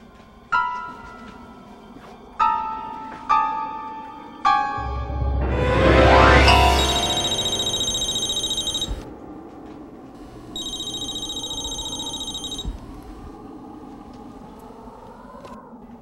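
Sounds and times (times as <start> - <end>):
telephone bell ringing: 6.5 - 9.1, 10.6 - 12.8.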